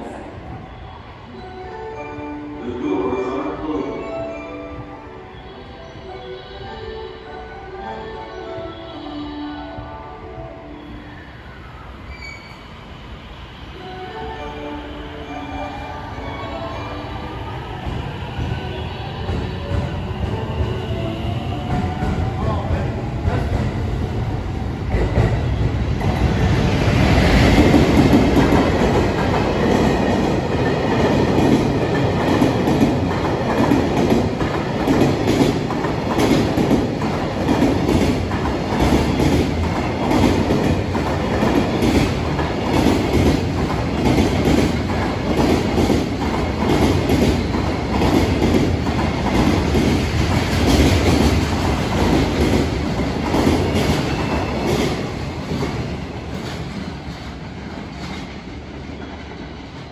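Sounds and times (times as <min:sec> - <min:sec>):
train rumble: 0:12.7 - 0:59.9.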